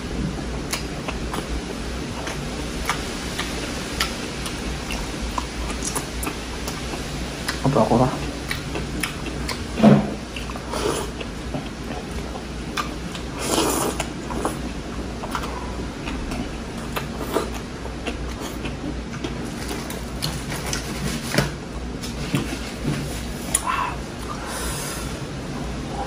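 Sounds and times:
steady low hum: 0.0 - 26.0
person chewing with wet mouth smacks: 0.7 - 7.6, 8.2 - 21.4.

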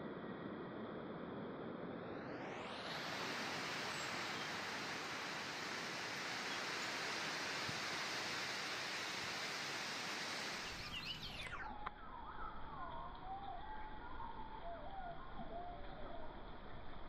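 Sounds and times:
steady rushing noise: 0.0 - 11.6
bird chirps: 10.6 - 16.3.

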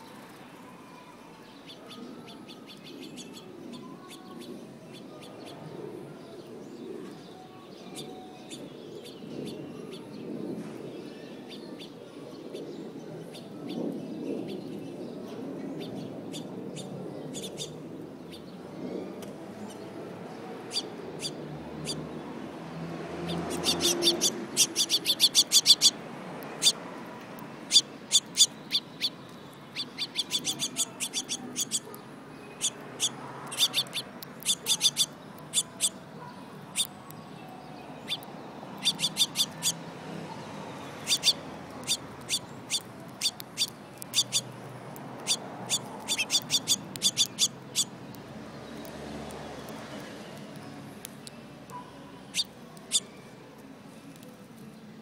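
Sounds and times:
finches chirping: 23.2 - 26.8, 27.6 - 36.1, 38.0 - 39.8, 41.0 - 44.6, 45.2 - 48.0, 52.3 - 53.1.

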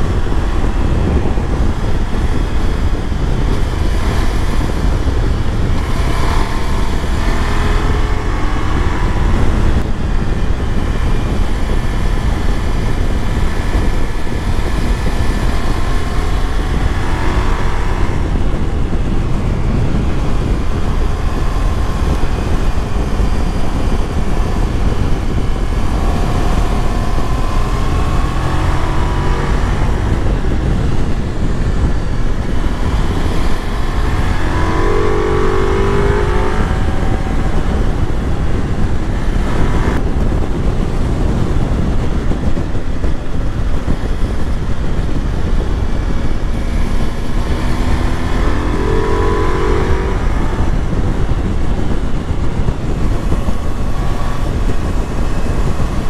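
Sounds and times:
motorcycle engine accelerating: 0.0 - 56.0
wind rumble on microphone: 0.0 - 56.0.

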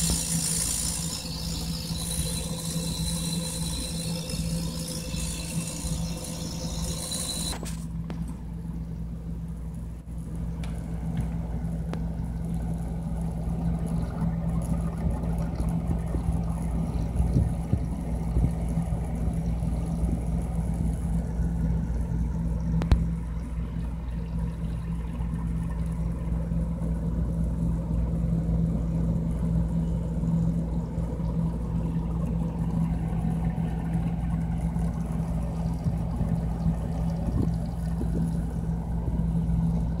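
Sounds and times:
high-pitched ring: 0.0 - 7.8
refrigerator compressor humming: 0.0 - 40.0.

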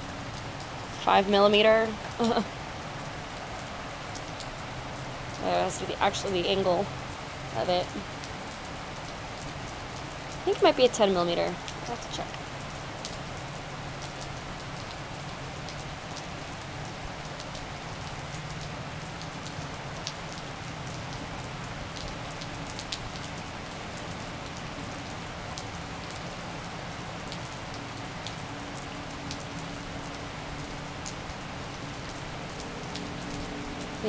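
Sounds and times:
raindrops ticking close by: 0.0 - 34.0
steady rain hiss: 0.0 - 34.0.

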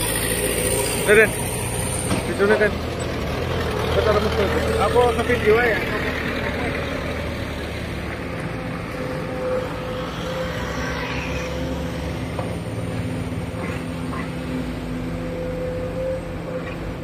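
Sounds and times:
diesel machinery running: 0.0 - 17.0
machine whine: 4.8 - 17.0.

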